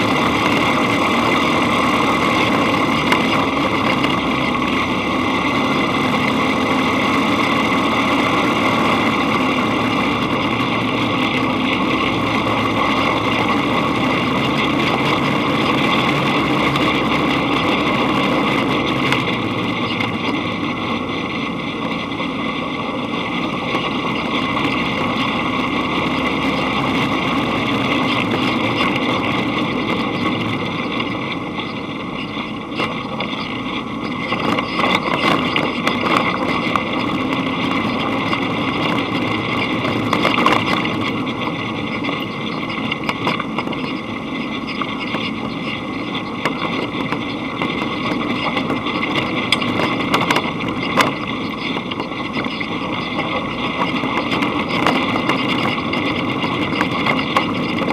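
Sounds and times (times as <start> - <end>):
dune buggy engine running: 0.0 - 57.9.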